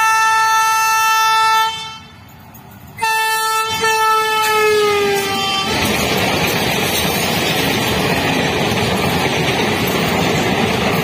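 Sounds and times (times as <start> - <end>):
locomotive horn blasts: 0.0 - 2.2, 3.0 - 5.8.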